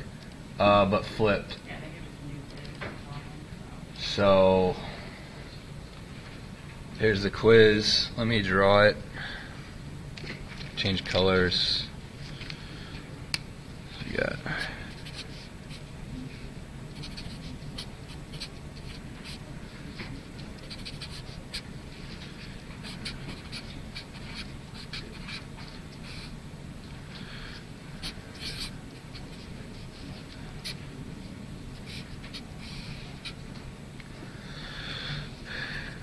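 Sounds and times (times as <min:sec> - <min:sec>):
low room hum: 0:00.0 - 0:36.0
scratchy pen strokes: 0:14.8 - 0:26.4, 0:28.0 - 0:30.9, 0:31.8 - 0:33.4.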